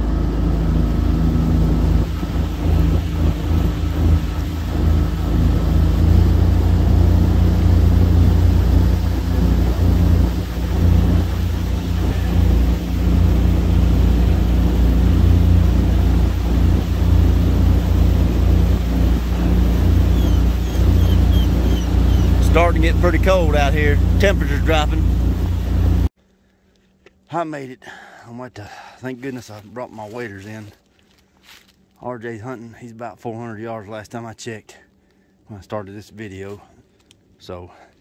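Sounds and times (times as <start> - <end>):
boat motor droning: 0.0 - 26.1
water and wind noise: 0.0 - 26.1.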